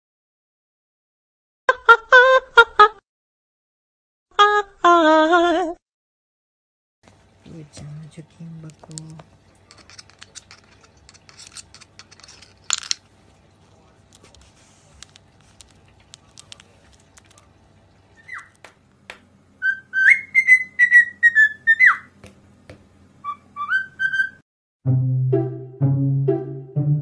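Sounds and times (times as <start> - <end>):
cockatiel whistling: 18.2 - 18.5, 19.6 - 22.1, 23.2 - 24.4.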